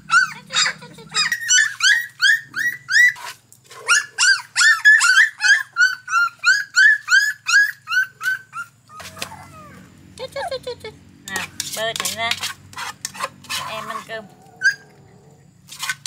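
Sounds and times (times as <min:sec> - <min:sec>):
dog yelping: 0:00.0 - 0:09.9, 0:14.4 - 0:15.3.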